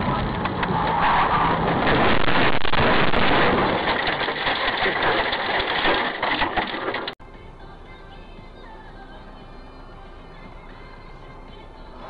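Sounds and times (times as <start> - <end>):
crackles: 0.0 - 7.2
road and wind noise: 0.0 - 9.1.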